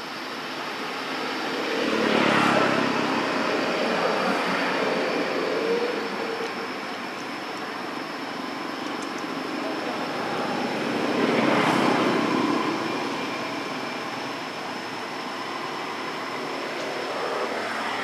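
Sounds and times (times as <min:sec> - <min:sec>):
vehicle engine passing by: 0:01.7 - 0:04.7.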